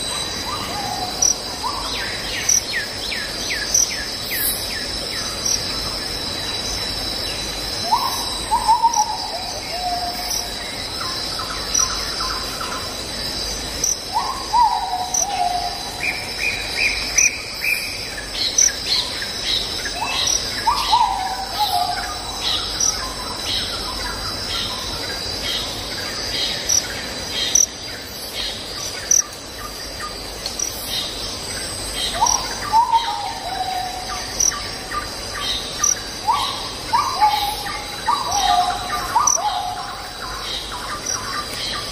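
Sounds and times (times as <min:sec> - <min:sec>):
high insect trill: 0:00.0 - 0:41.9
bird calls: 0:07.8 - 0:13.0, 0:32.0 - 0:41.9.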